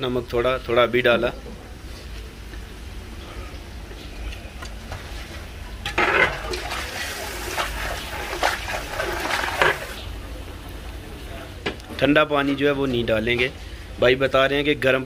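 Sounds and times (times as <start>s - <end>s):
water pouring into a pot: 5.9s - 10.1s.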